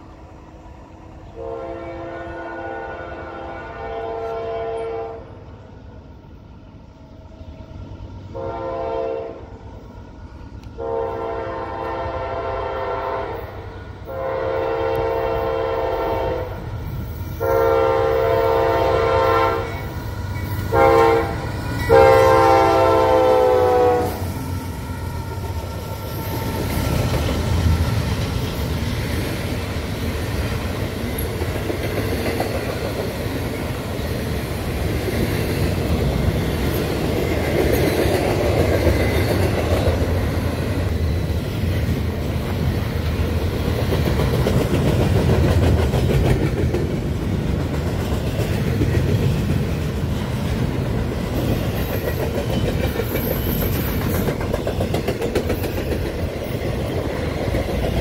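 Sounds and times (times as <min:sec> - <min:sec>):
train wheels rumbling on rail: 0:00.0 - 0:58.0
locomotive air horn blasts: 0:01.4 - 0:05.3, 0:08.3 - 0:09.5, 0:10.8 - 0:16.6, 0:17.4 - 0:19.9, 0:20.6 - 0:24.3.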